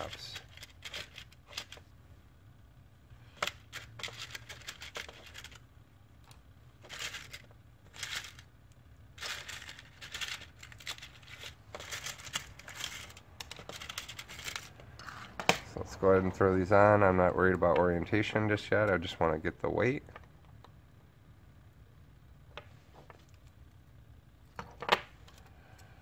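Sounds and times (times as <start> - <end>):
plastic propellers clicking and rattling: 3.4 - 5.6, 6.8 - 8.5, 9.2 - 14.8.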